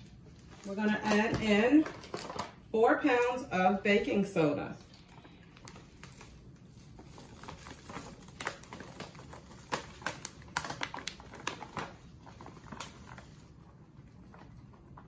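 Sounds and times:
plastic bag crinkling: 0.0s - 3.3s, 4.8s - 15.0s
powder pouring into a pot: 5.6s - 15.0s.

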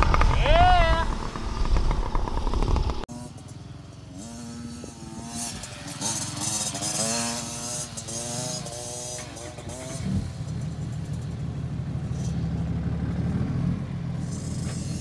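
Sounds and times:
distant dirt bike engine revving: 0.0s - 11.3s
mini dirt bike engine running: 0.0s - 11.4s, 14.2s - 15.0s.

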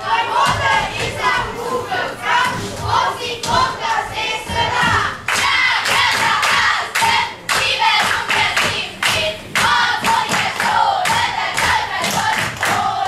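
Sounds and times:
children calling and singing: 0.0s - 13.0s
hand claps: 5.3s - 12.9s.

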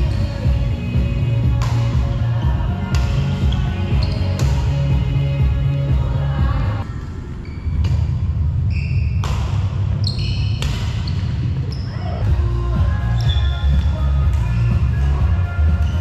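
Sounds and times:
shoes squeaking on court: 1.6s - 5.0s, 7.4s - 12.2s, 13.0s - 14.8s, 15.6s - 16.0s
racket striking shuttlecock: 9.2s - 9.8s.

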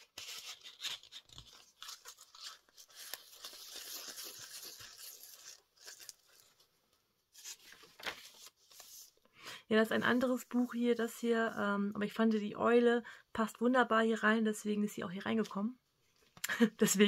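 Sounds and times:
paper rustling and crinkling: 0.0s - 9.2s.

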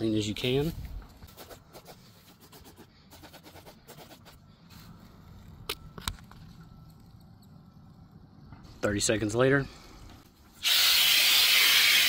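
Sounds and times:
spray bottle squirting: 10.6s - 12.0s.

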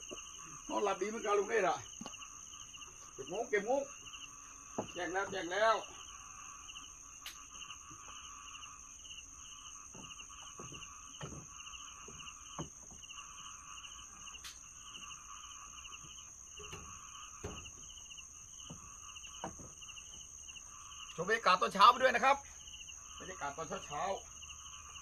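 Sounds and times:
high insect drone: 0.0s - 25.0s
small frogs: 0.0s - 25.0s
soft knocks: 4.8s - 5.5s, 9.9s - 13.1s, 18.6s - 20.3s.

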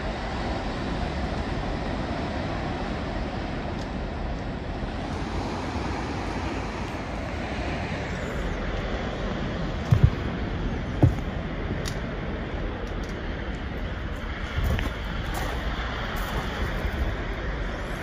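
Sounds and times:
wind buffeting microphone: 0.0s - 18.0s
low thumps: 9.8s - 10.3s.

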